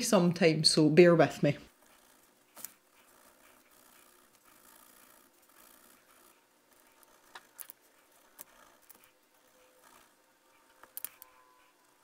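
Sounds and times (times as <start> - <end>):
pen scratching on paper: 1.7 - 12.0
small sharp clicks: 9.6 - 11.4.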